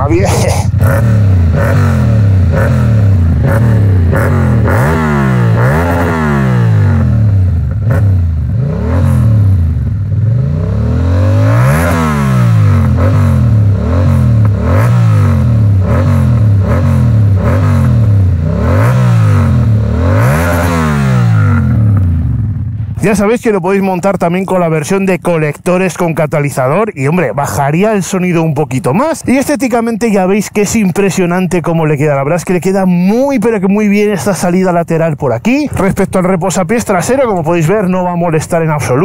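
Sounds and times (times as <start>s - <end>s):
motorcycle engine revving: 0.0s - 27.3s.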